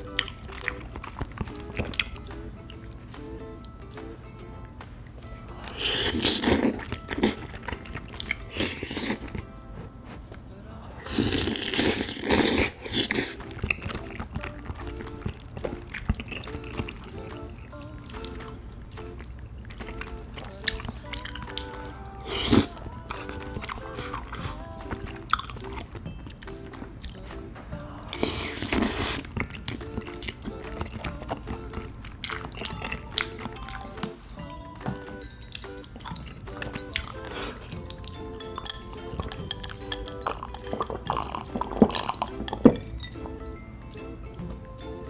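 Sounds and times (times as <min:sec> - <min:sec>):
chewing and biting: 0:00.0 - 0:03.8, 0:05.6 - 0:34.2, 0:34.9 - 0:43.6
light background music: 0:00.0 - 0:45.0
slurp off a metal spoon: 0:11.0 - 0:13.4
wet mouth clicks: 0:35.5 - 0:43.5
ice cubes clinking in glass: 0:38.0 - 0:43.2.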